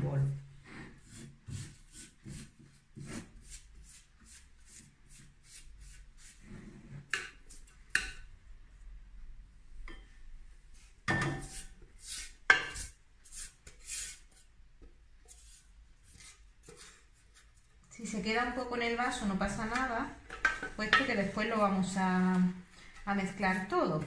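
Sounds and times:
spatula scraping metal bowl: 0:11.2 - 0:14.5, 0:15.3 - 0:17.5.

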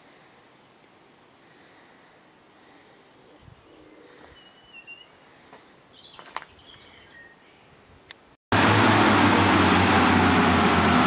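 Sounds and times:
background hiss: 0:00.0 - 0:08.4
bird chirps: 0:03.2 - 0:07.8.

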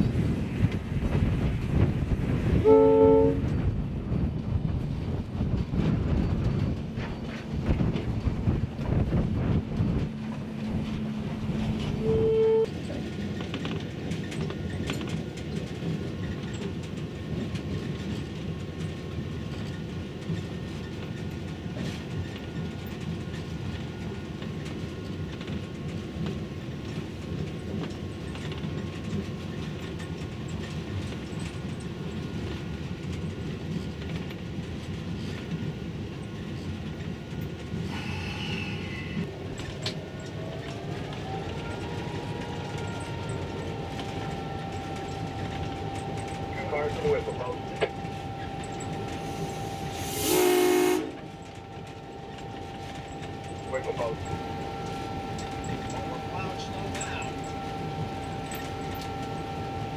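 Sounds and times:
locomotive rumble: 0:00.0 - 0:59.9
rail clicks: 0:00.0 - 0:59.9
brief tone: 0:11.8 - 0:12.7, 0:42.4 - 0:59.9.

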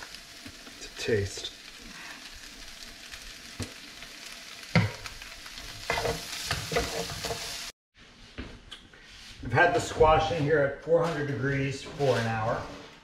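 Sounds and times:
food sizzling in skillet: 0:00.0 - 0:07.8
wooden spatula scraping pan: 0:05.8 - 0:07.6, 0:09.0 - 0:13.0.

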